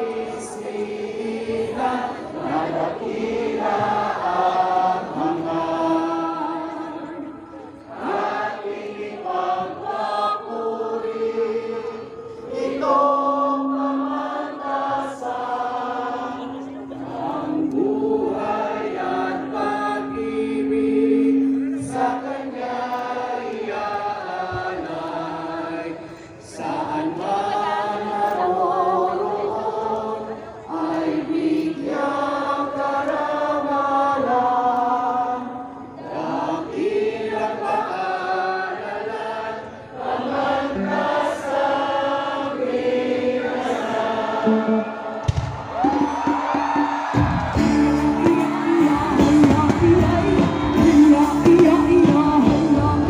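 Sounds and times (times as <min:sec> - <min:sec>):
voices singing a chant-like song: 0:00.0 - 0:53.0
low held note: 0:17.8 - 0:22.6.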